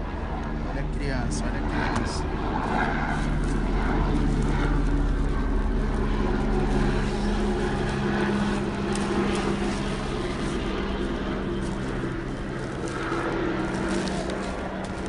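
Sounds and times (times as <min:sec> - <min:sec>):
paper and bubble wrap crinkling: 0:03.2 - 0:15.0.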